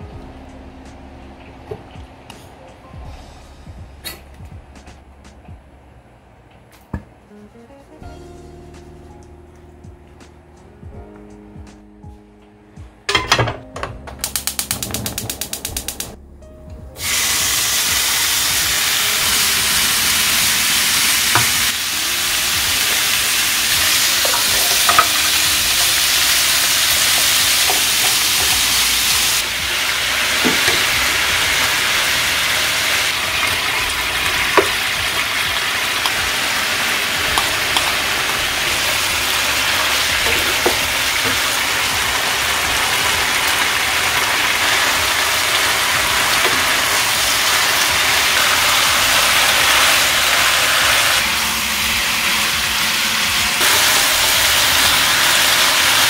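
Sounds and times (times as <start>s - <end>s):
meat sizzling in a frying pan: 17.0s - 56.0s.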